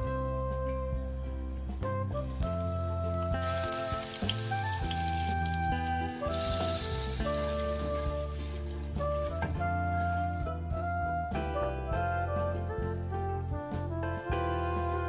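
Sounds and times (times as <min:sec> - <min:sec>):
instrumental background music: 0:00.0 - 0:15.0
butter sizzling in frying pan: 0:02.8 - 0:09.4.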